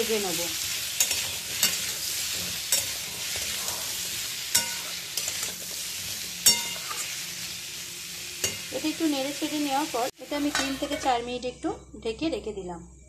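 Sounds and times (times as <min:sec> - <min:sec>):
pumpkin sizzling in oil: 0:00.0 - 0:11.2
metal spatula scraping pan: 0:00.7 - 0:07.6.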